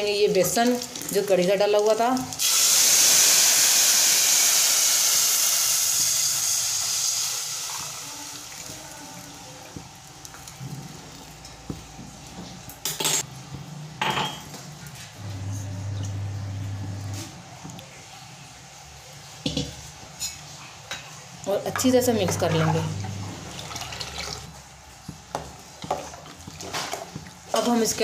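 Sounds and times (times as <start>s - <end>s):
hot oil hissing: 2.2s - 10.2s.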